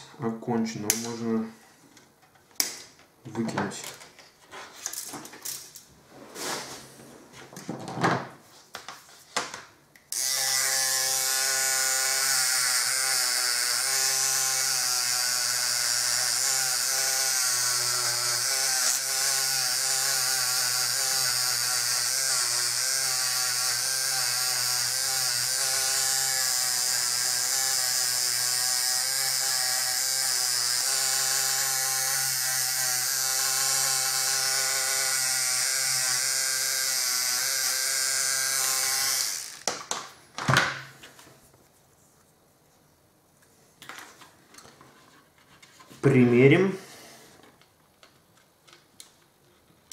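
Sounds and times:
power tool motor whine: 10.2s - 39.8s.

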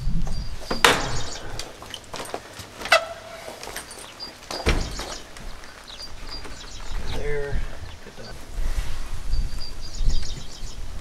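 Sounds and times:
door knocking into frame: 4.6s - 5.1s.

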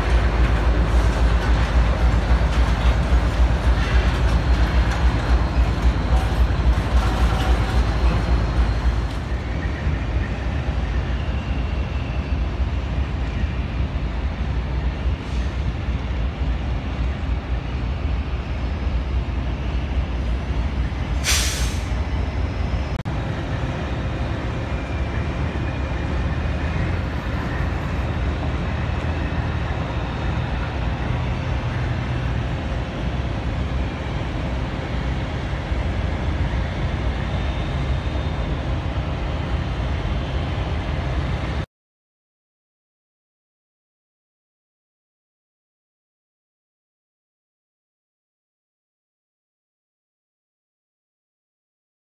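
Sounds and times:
freight train engine and wheel rumble: 0.0s - 41.7s
sharp burst of air hiss: 21.2s - 22.0s.

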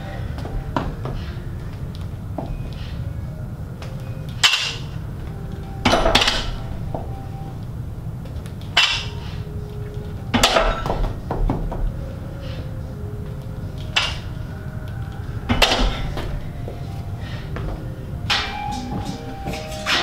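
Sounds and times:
low steady hum: 0.0s - 20.0s
barbell weight plates clanking: 5.8s - 7.2s, 10.3s - 12.0s, 15.5s - 16.6s.

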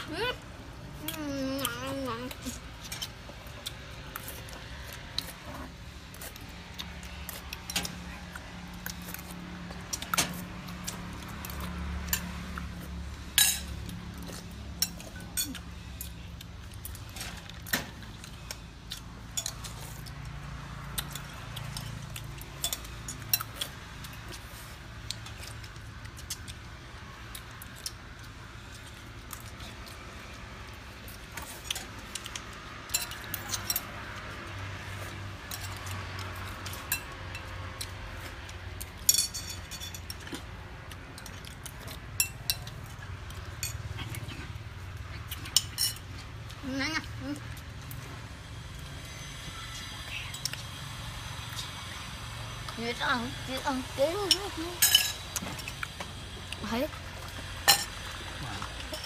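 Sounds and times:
spoons clinking on ceramic bowls: 39.1s - 40.1s, 54.3s - 55.2s.

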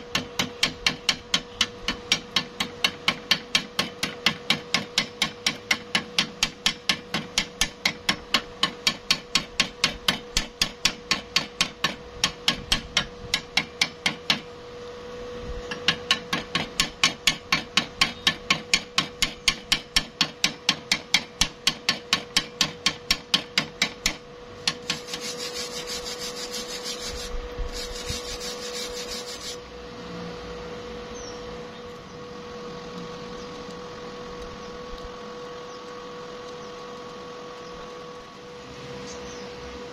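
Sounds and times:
rough scraping over metal: 24.7s - 29.6s.

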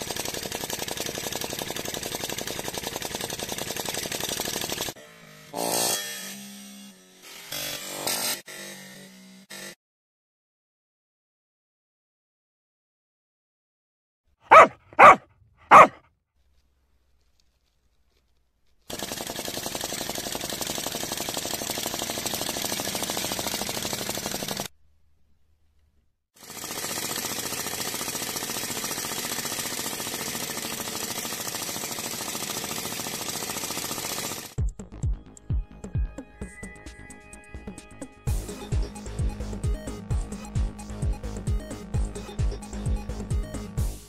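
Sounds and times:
loud bark-like sounds: 14.5s - 16.0s
hot air engine clattering: 18.9s - 24.7s, 26.4s - 34.6s.

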